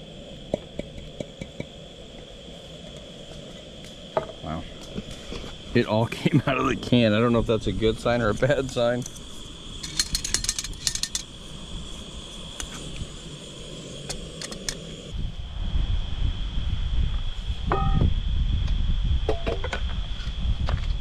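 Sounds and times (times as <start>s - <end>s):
crickets trilling: 0.0s - 21.0s
camp dishes clinking: 9.8s - 11.3s.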